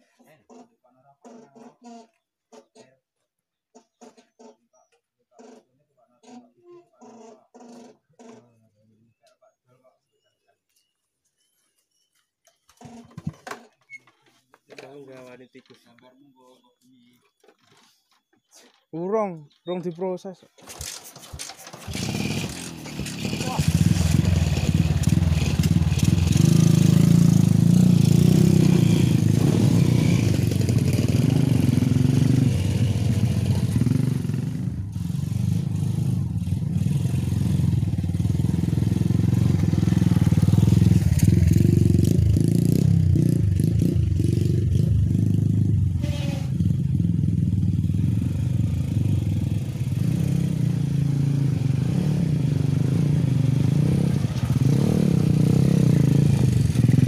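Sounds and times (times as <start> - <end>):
motorcycle engine at low speed: 20.6 - 57.0.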